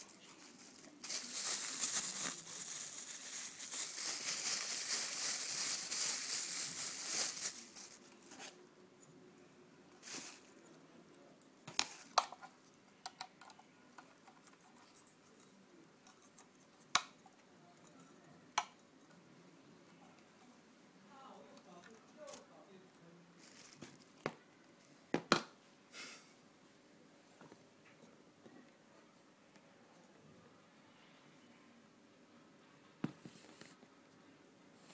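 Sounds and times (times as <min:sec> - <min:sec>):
plastic wrapping crinkling: 0:00.0 - 0:08.6, 0:23.4 - 0:24.2.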